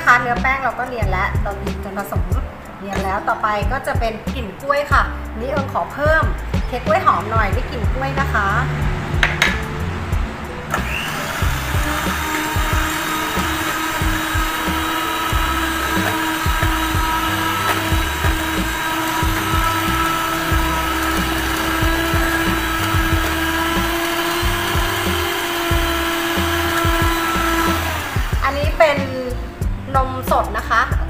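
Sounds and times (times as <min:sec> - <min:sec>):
beaters knocking in a metal pot: 0:09.2 - 0:09.7, 0:11.7 - 0:27.8
electric hand mixer whine: 0:10.7 - 0:28.9.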